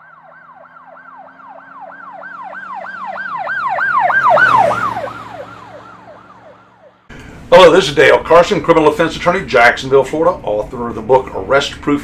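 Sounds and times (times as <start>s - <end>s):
emergency siren yelping: 0.0s - 7.1s.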